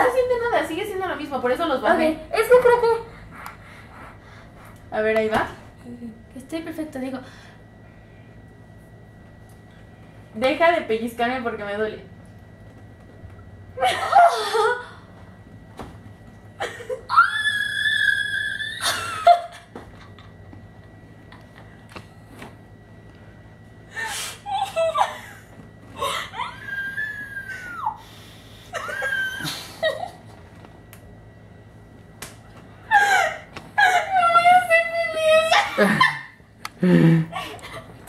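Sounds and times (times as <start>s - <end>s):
woman laughing: 13.8s - 15.0s, 16.6s - 17.3s, 18.6s - 20.3s, 24.4s - 27.9s, 28.6s - 30.3s, 32.9s - 38.0s
woman squealing and whimpering: 17.1s - 19.4s, 24.0s - 25.3s, 26.0s - 28.0s, 28.8s - 29.7s, 32.9s - 36.3s.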